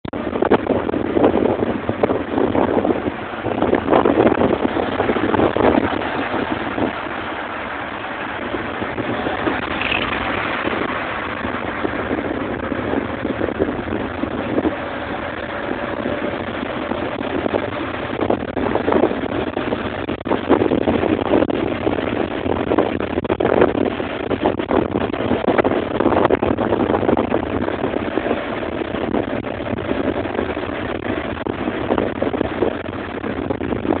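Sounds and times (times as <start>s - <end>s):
road traffic noise: 0.0s - 34.0s.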